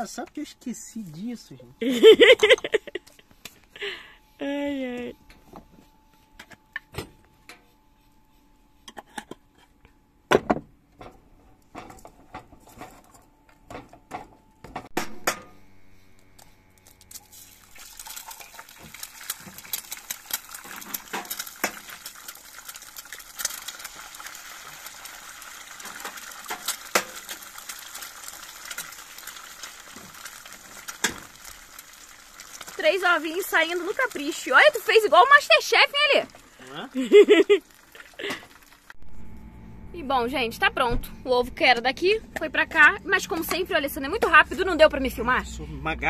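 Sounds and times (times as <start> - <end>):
eggs sizzling in oil: 16.8 - 39.0.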